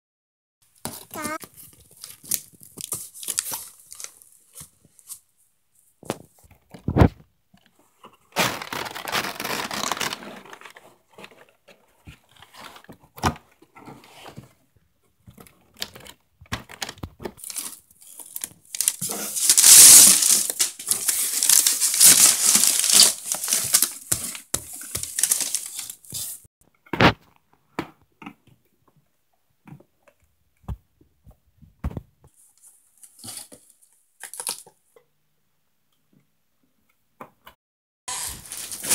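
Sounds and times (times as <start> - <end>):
packing paper crumpling: 0.9 - 5.2, 8.4 - 10.8, 17.4 - 26.5, 38.1 - 38.9
packing tape tearing: 8.4 - 10.7, 17.4 - 26.4, 38.1 - 38.9.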